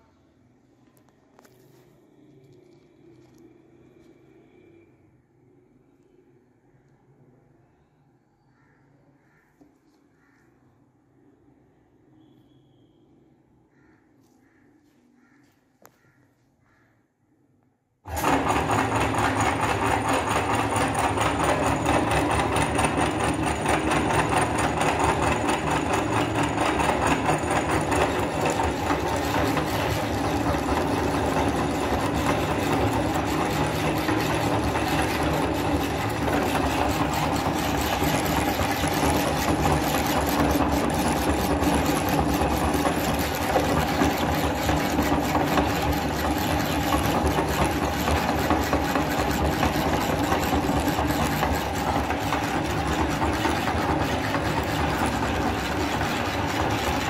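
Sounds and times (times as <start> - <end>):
meat grinder motor running: 18.1 - 57.0.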